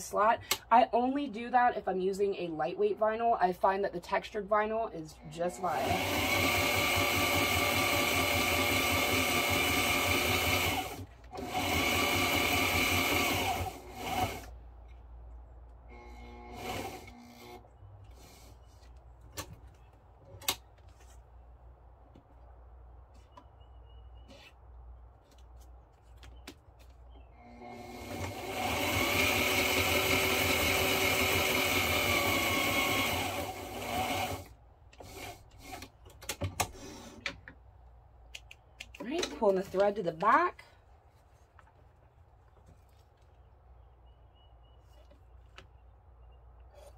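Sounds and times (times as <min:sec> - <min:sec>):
sewing machine stitching: 0:05.5 - 0:14.5, 0:27.6 - 0:35.9.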